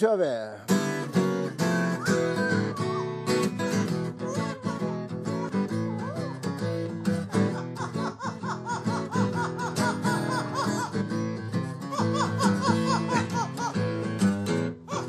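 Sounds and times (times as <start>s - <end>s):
acoustic guitar blues: 0.6s - 15.0s
parrot singing: 1.9s - 3.4s.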